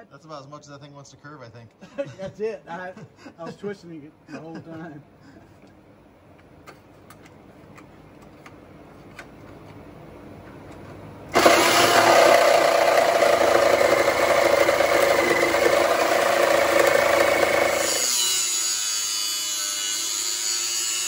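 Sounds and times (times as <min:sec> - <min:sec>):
electric grinder on metal: 0:11.4 - 0:21.0.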